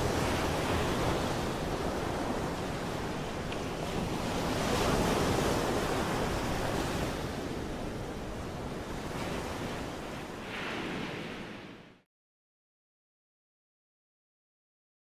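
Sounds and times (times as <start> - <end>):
surf washing onto beach: 0.0 - 11.8
wind: 0.0 - 12.1.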